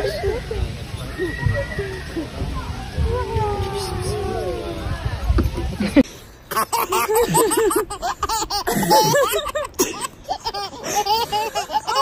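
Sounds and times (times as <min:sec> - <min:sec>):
baby laughing: 0:06.5 - 0:12.0.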